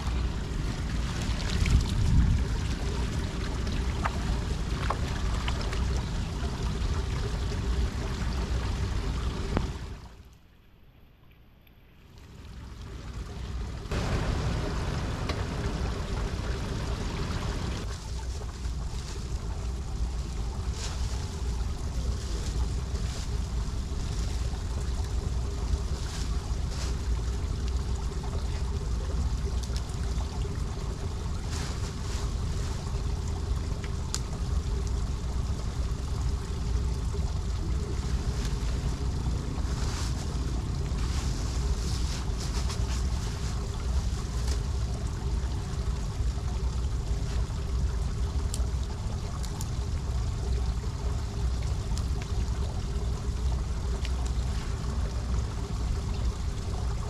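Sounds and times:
wind buffeting microphone: 0:00.0 - 0:09.9
rustling twigs and leaf litter: 0:13.9 - 0:27.7, 0:31.1 - 0:34.9, 0:37.8 - 0:45.1, 0:53.8 - 0:55.2.

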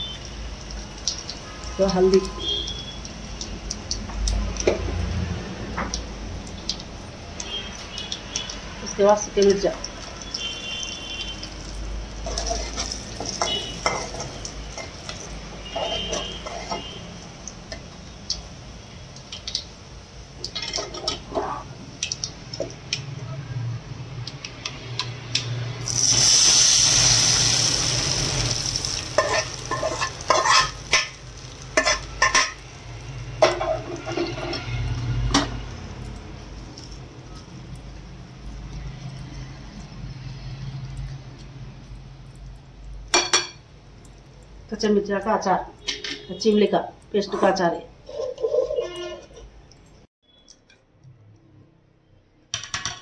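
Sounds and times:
hot oil sizzling in a pan: 0:00.0 - 0:23.0, 0:24.9 - 0:48.2
spoon scraping metal pan: 0:12.2 - 0:17.0, 0:20.5 - 0:21.7, 0:29.2 - 0:31.2, 0:31.8 - 0:32.6, 0:33.4 - 0:35.6, 0:47.3 - 0:49.5.

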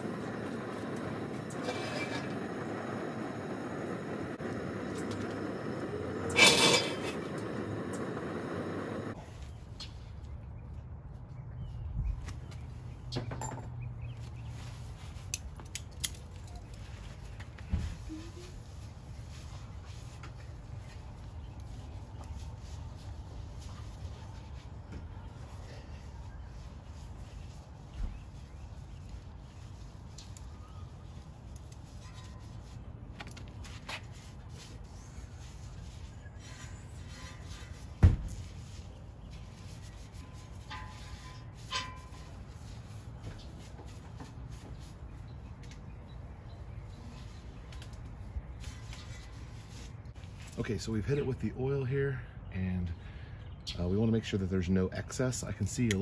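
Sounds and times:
propane burner running: 0:00.0 - 0:09.2.

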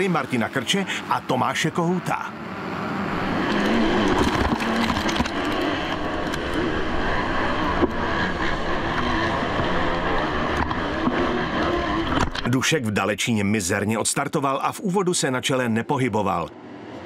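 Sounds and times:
motocross bikes revving: 0:02.3 - 0:12.5.

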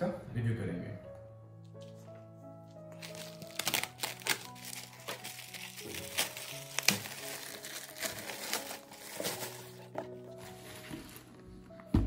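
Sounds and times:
background music: 0:00.0 - 0:12.0
plastic bag crinkling: 0:02.7 - 0:10.5.

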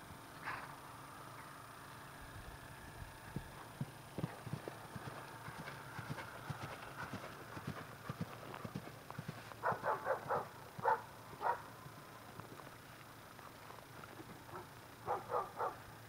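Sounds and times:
horse hoofbeats on grass: 0:03.3 - 0:15.4.

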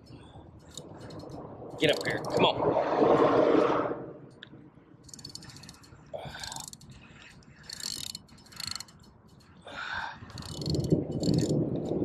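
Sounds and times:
fishing reel clicking: 0:00.0 - 0:02.4, 0:05.0 - 0:12.0.

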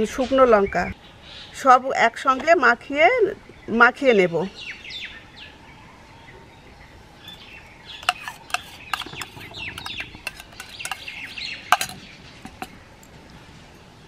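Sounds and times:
small birds chirping: 0:03.2 - 0:13.2
spoon scraping steel bowl: 0:07.3 - 0:12.8.

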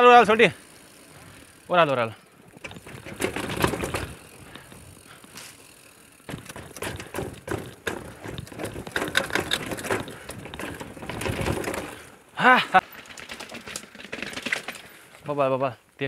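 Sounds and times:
bike rattling down stone steps: 0:00.0 - 0:15.4.

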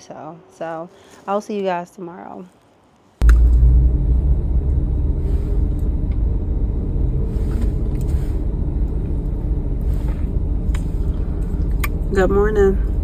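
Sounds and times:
car engine rumble: 0:03.2 - 0:13.0.

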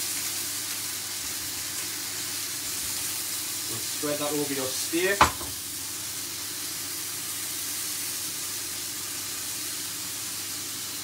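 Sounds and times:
steak sizzling in a pan: 0:00.0 - 0:11.0.

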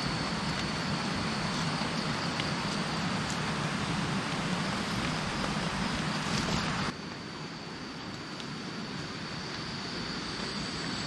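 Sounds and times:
rushing hiss: 0:00.0 - 0:06.9.

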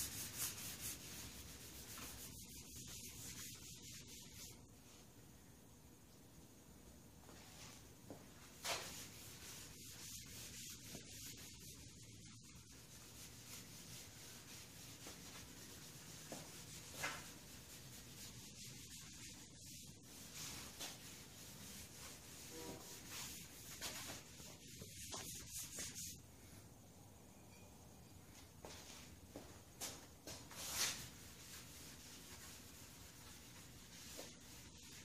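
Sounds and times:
rag wiping wood: 0:00.0 - 0:04.6, 0:08.6 - 0:26.2.

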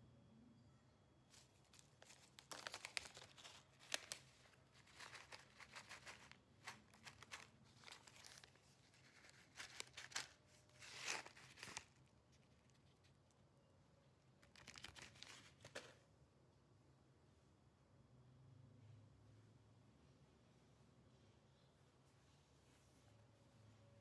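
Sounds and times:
faint low hum: 0:00.0 - 0:24.0
crinkling and rustling: 0:01.3 - 0:13.5, 0:14.2 - 0:16.0.

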